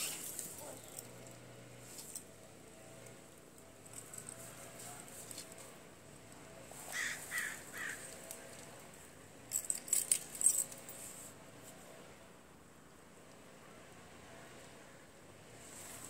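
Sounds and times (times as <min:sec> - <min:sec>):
handling clicks and rustles: 0:00.0 - 0:11.8.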